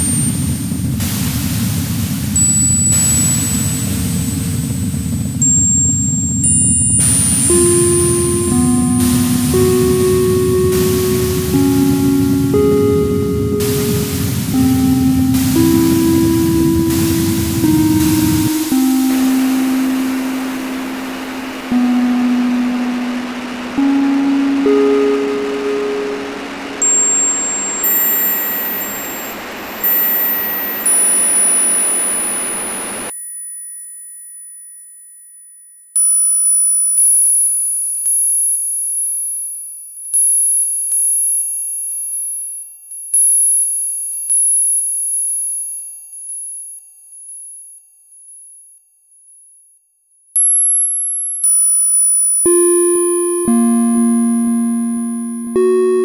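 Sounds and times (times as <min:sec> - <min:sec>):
dense electronic hiss: 0:00.0 - 0:06.3, 0:07.0 - 0:33.1
piercing high sine tones: 0:00.0 - 0:33.1, 0:52.5 - 0:56.0
high-pitched electronic tones: 0:02.4 - 0:04.0, 0:05.4 - 0:33.1, 0:52.5 - 0:56.0
low synthesizer tones: 0:05.4 - 0:33.1, 0:52.5 - 0:56.0.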